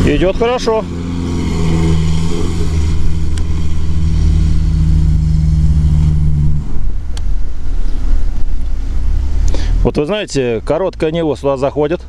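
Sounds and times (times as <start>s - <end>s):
car engine pulling under load: 0.0s - 11.2s.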